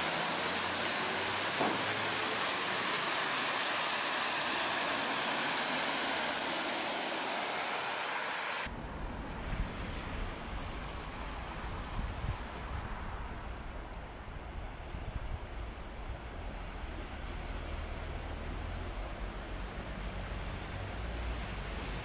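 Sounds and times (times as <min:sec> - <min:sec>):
tyres splashing through water: 0:00.0 - 0:08.7
wind rumble on microphone: 0:08.7 - 0:22.0.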